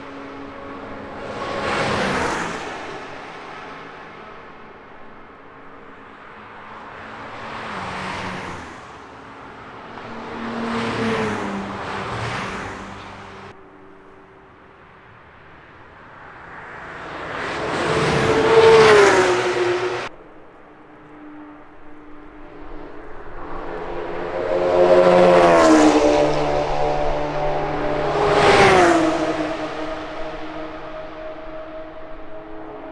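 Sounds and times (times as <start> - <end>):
race cars driving past: 0.0 - 32.9.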